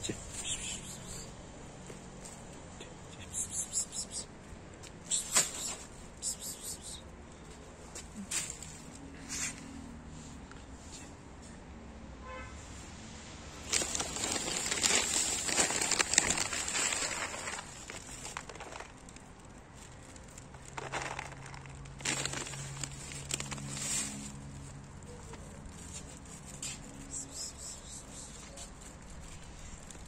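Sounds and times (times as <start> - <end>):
plastic bag crinkling: 13.6 - 26.4.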